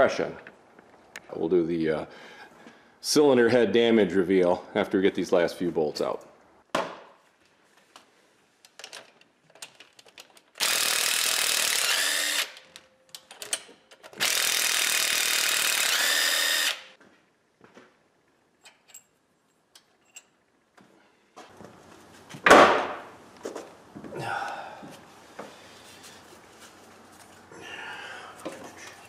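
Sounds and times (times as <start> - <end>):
small clicks and tool clatter: 8.6 - 10.6
cordless power driver spinning: 10.6 - 12.7, 14.2 - 16.9.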